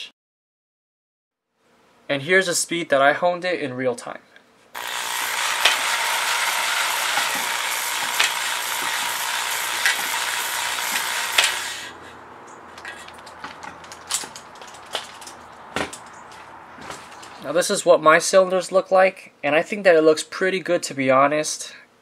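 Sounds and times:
drill spinning cylinder hone: 0:04.8 - 0:12.1
hone stones clicking: 0:04.8 - 0:16.4.

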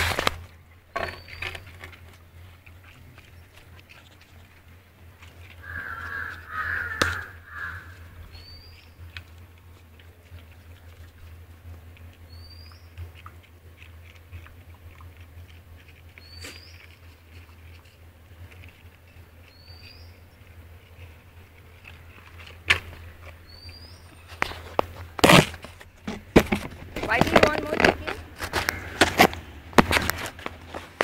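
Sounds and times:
crow cawing harshly: 0:05.6 - 0:08.1, 0:28.5 - 0:29.2.

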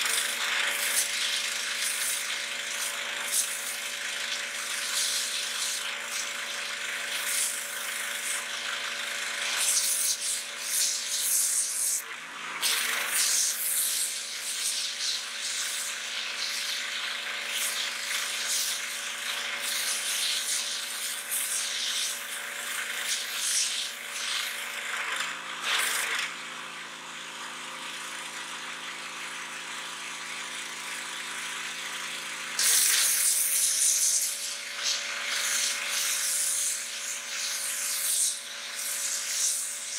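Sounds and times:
water jet hissing: 0:00.0 - 0:12.0, 0:12.6 - 0:24.6, 0:32.6 - 0:39.9
pressure washer motor hum: 0:00.0 - 0:39.9.

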